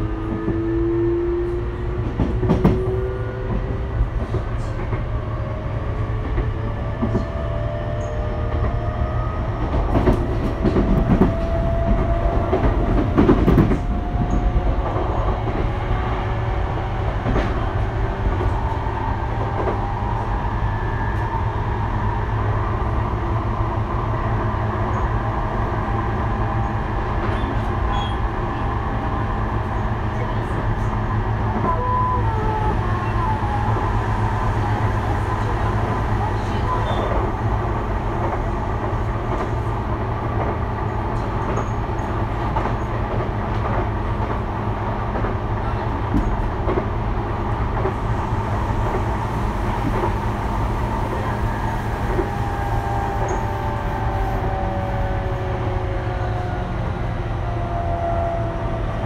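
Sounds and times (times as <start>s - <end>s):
train interior rumble: 0.0s - 59.0s.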